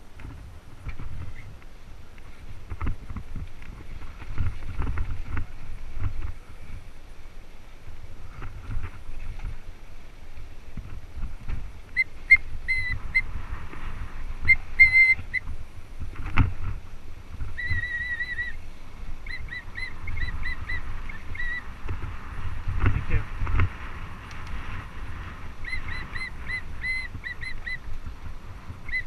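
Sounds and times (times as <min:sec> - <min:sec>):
bike tyres rumbling on dirt: 0:00.0 - 0:19.2, 0:19.9 - 0:29.0
wind on camera: 0:00.0 - 0:29.0
high whistling squeaks: 0:11.9 - 0:13.3, 0:14.4 - 0:15.4, 0:17.6 - 0:18.6.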